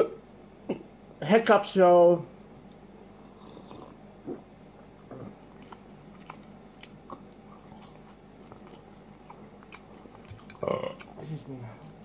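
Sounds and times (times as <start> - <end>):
person chewing fries: 4.8 - 12.0.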